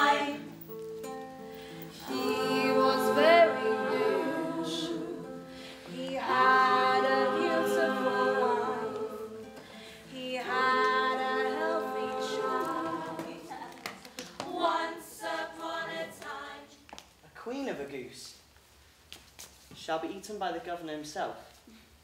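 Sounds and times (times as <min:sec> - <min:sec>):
unaccompanied group singing: 0:00.0 - 0:00.5, 0:01.8 - 0:16.8.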